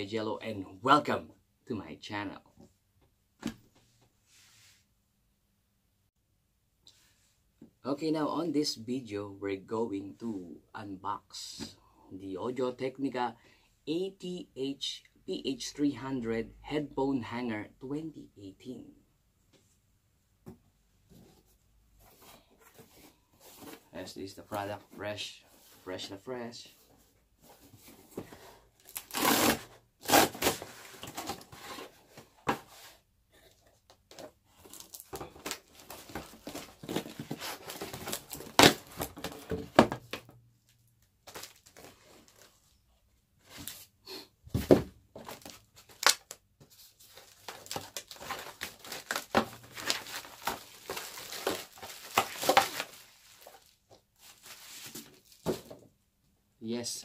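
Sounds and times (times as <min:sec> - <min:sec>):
plastic packaging crinkling and tearing: 0:41.3 - 0:42.5, 0:45.3 - 0:46.4, 0:47.0 - 0:55.4.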